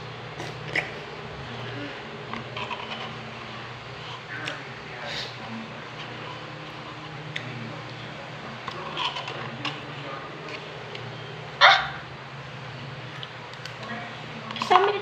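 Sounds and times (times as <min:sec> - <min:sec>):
bark-like yelp: 0:11.6 - 0:12.0.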